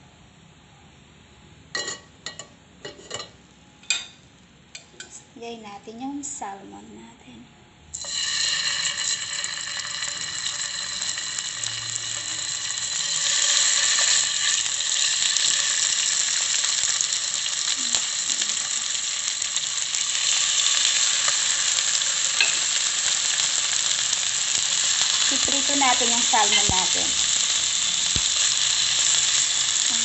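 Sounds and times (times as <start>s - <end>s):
fish sizzling in hot oil: 7.9s - 30.0s.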